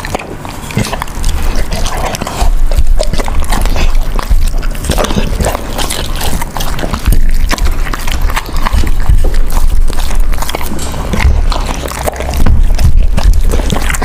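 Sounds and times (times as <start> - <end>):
dog chewing and slurping: 0.0 - 14.0.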